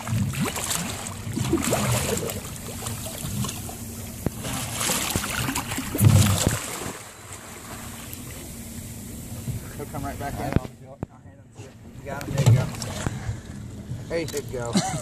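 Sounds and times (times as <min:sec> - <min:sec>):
fish thrashing and splashing: 0:00.0 - 0:08.3
thump against boat: 0:06.0 - 0:06.6, 0:12.2 - 0:13.3.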